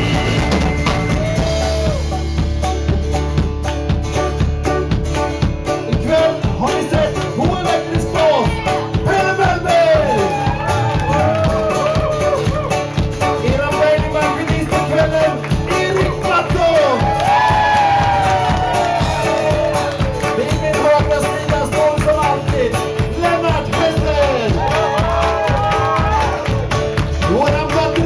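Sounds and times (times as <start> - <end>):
live rock band playing: 0.0 - 28.0.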